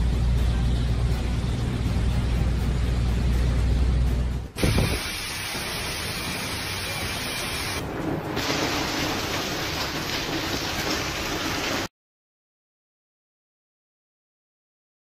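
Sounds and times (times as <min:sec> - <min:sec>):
hailstones pelting pavement and cars: 0:04.6 - 0:11.9.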